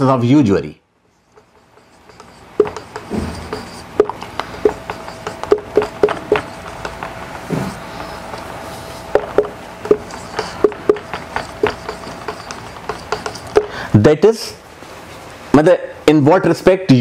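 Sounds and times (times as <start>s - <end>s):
marker pen squeaking on whiteboard: 1.1s - 13.8s.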